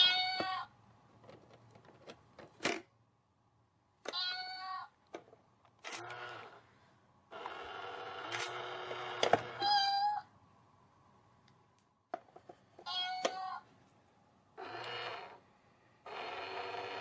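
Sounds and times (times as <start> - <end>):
toy playing recorded meow: 0.0 - 0.7, 4.1 - 4.9, 9.5 - 10.3, 12.8 - 13.6.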